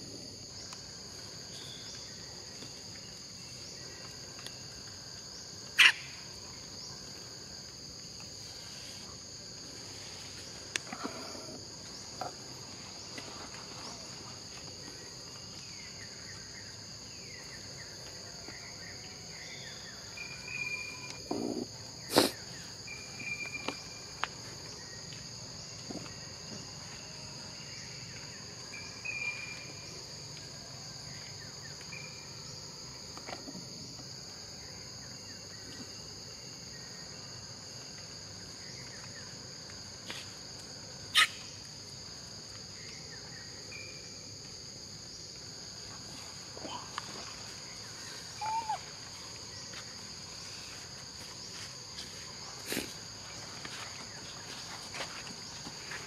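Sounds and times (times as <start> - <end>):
insects droning: 0.0 - 56.0
short chirps and falling calls: 48.4 - 48.8.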